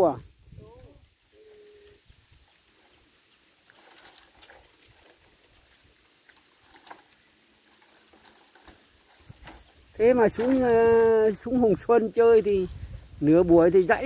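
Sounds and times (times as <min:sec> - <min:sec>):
bamboo poles knocking and rubbing: 0:06.6 - 0:11.1.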